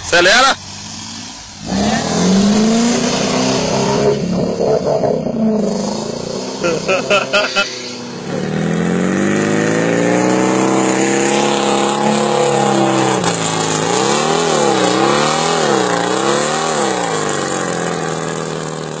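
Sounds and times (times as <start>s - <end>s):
car engine revving: 0.0s - 19.0s
car ploughing through water and mud: 8.3s - 19.0s.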